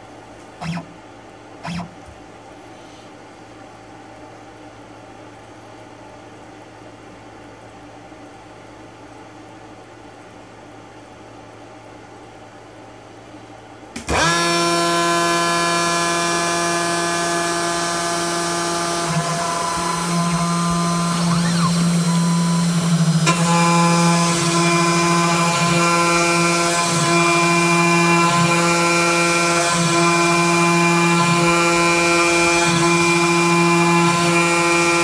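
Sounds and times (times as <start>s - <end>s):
router spindle whining: 14.1s - 35.0s.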